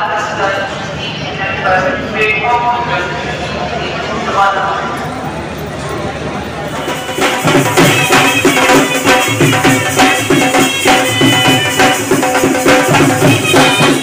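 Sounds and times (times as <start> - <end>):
drums beaten with sticks: 6.7 - 14.0.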